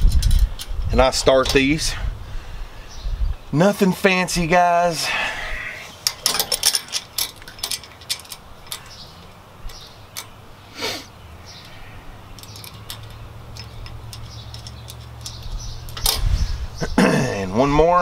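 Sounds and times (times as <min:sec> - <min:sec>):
metallic clicks of bolts and nuts: 0:00.0 - 0:00.8, 0:06.0 - 0:10.4, 0:11.6 - 0:16.3.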